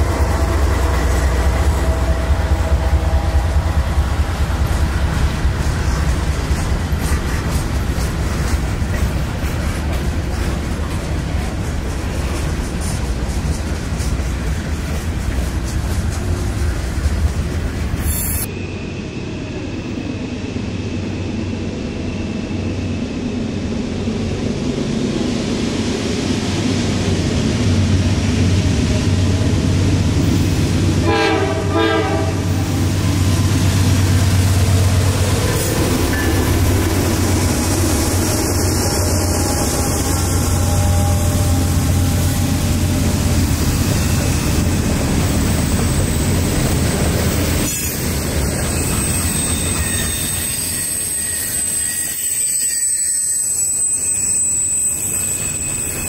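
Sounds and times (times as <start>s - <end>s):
diesel locomotive engine drone: 0.0s - 56.0s
train horn blasts: 31.0s - 32.7s, 39.0s - 42.5s.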